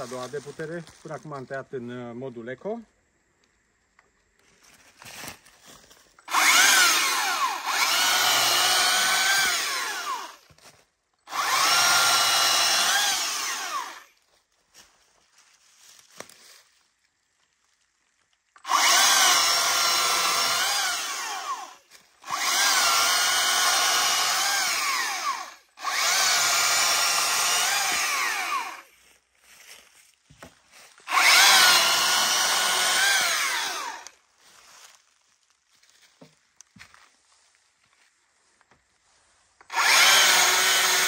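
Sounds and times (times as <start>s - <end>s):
battery chainsaw cutting wood: 6.2s - 10.5s, 11.2s - 14.2s, 18.6s - 28.9s, 31.0s - 34.2s, 39.6s - 41.0s.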